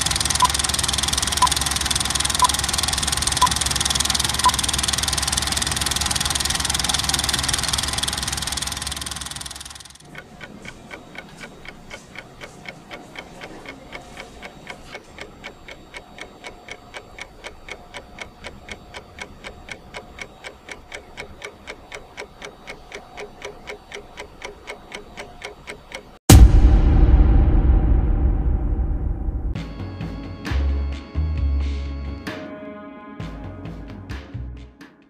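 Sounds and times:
clock ticking: 0.0 - 26.6
loud music: 26.3 - 31.5.

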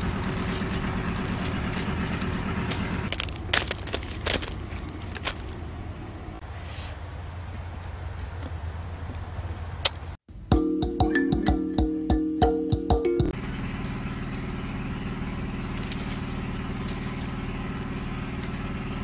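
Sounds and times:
low motor drone: 0.0 - 3.4, 10.5 - 19.0.

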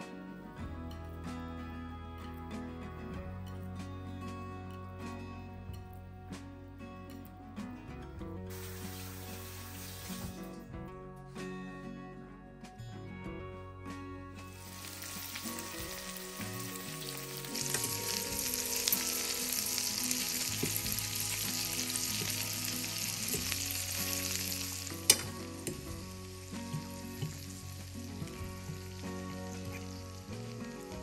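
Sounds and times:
meatballs sizzling in oil: 8.5 - 10.4, 14.5 - 31.0.

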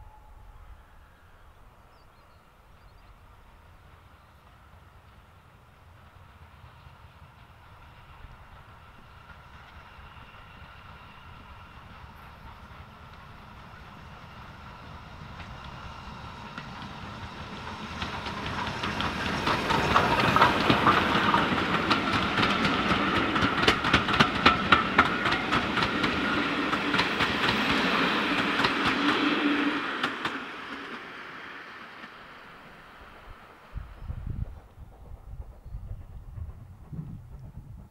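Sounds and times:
steam train passing: 0.0 - 37.9
wheels clicking over rail joints: 16.5 - 29.0.

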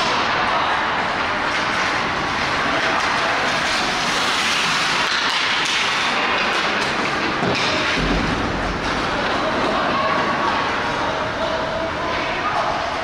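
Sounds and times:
skate blades scraping ice: 1.4 - 8.0.

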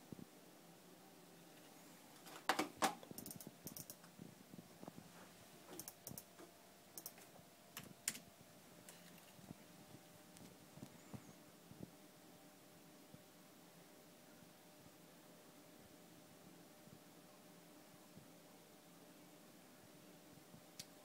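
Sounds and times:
computer keyboard clicks: 3.1 - 4.1, 5.8 - 6.3, 7.0 - 8.2.

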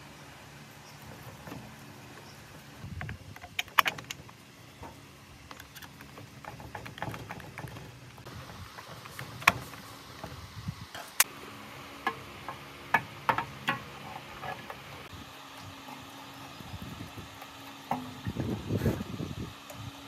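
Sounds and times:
saw parts clicking and knocking: 2.9 - 10.3, 12.0 - 14.8.

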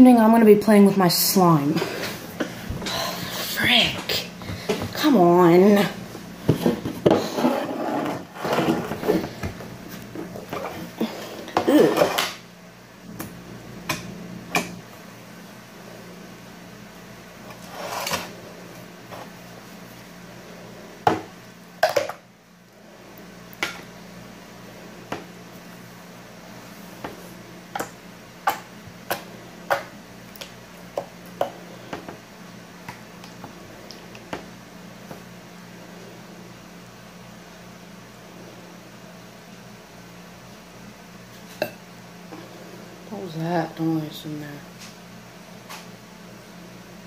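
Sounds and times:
steady low hum: 0.0 - 47.0.

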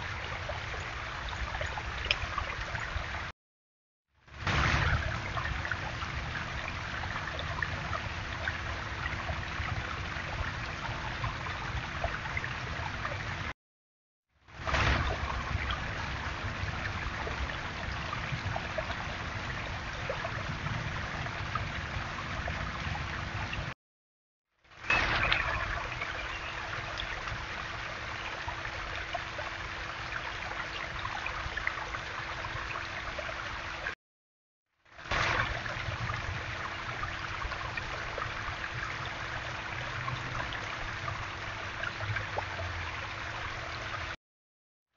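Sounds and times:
water splashing and trickling: 0.0 - 3.3, 4.2 - 13.6, 14.4 - 23.8, 24.6 - 34.0, 34.9 - 44.2
faint steady hum: 4.3 - 13.5, 14.5 - 23.7, 24.8 - 33.9, 35.1 - 44.2
waterfall splashing on stone: 4.4 - 8.6, 14.6 - 20.4, 24.8 - 27.4, 35.0 - 38.8.

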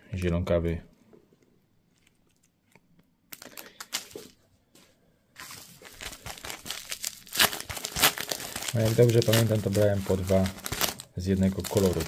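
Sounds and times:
plastic packaging crinkling: 3.3 - 4.4, 5.4 - 12.0.

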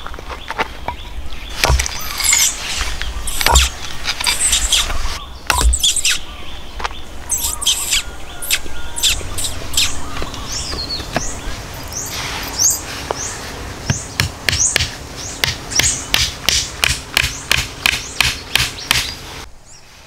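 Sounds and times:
birds chirping: 0.0 - 19.9
machete chopping wood: 1.6 - 2.4, 3.3 - 6.0, 13.9 - 19.2.

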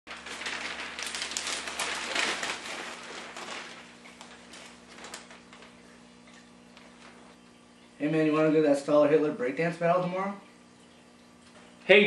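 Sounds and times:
newspaper pages rustling: 0.1 - 6.0, 6.7 - 7.4.

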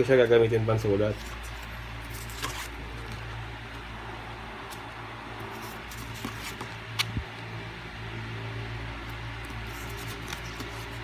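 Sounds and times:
steady low hum: 0.0 - 11.0
paper rustles and clicks: 9.4 - 11.0.

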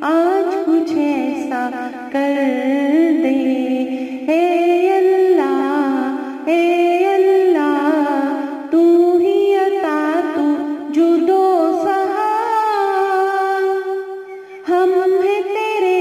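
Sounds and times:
woman singing solo: 0.0 - 16.0.

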